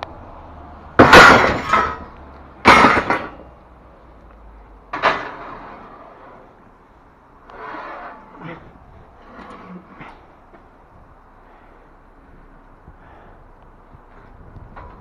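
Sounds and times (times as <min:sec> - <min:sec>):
metal scaffolding clanking: 0:01.0 - 0:03.6, 0:04.9 - 0:06.5, 0:07.5 - 0:10.7.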